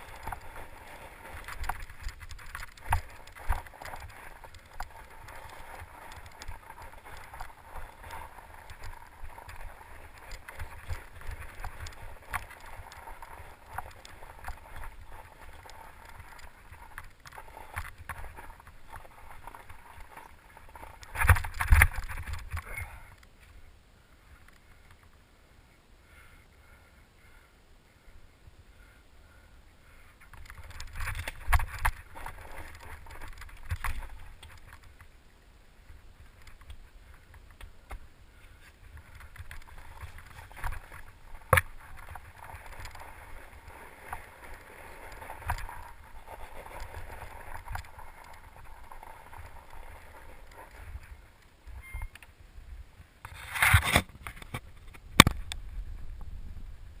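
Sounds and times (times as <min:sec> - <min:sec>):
bike tyres crunching on snow: 0:00.0 - 0:23.6, 0:30.1 - 0:51.8
camera handling rubbing and knocking: 0:53.3 - 0:55.6.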